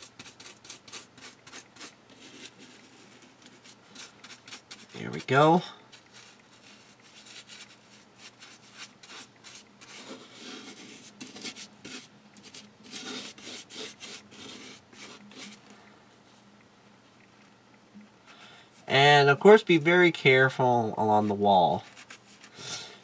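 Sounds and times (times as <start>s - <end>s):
paintbrush scratching on plaster: 0.0s - 15.6s, 21.7s - 22.6s.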